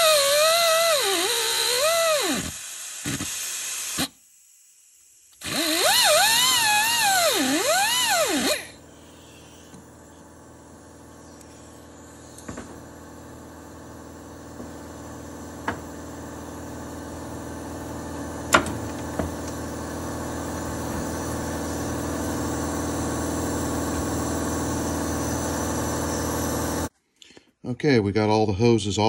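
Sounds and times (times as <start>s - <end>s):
steady mechanical hum: 5.8s - 26.9s.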